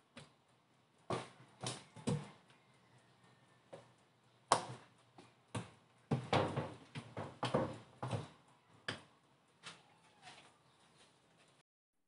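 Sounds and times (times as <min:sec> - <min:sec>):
plastic hoses knocking and clattering: 0:04.5 - 0:09.0.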